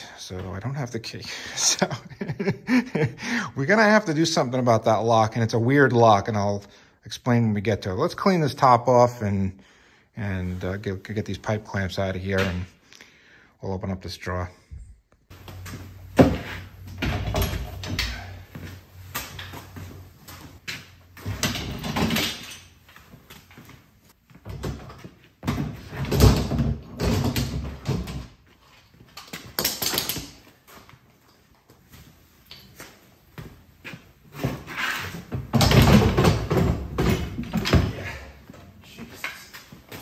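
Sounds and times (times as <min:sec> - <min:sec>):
metal clamps clanking and rattling: 0:21.2 - 0:22.8.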